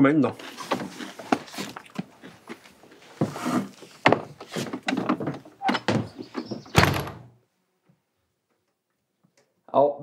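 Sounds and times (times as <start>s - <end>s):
footsteps: 0.3s - 7.2s
wooden door knocks and thuds: 4.0s - 7.4s.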